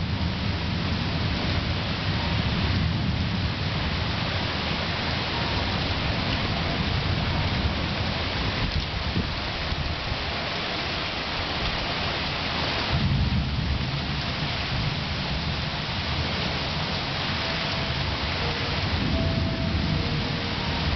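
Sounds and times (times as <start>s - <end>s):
heavy rain splashing on water: 0.0s - 20.9s
low thunder rumbling: 12.9s - 20.9s.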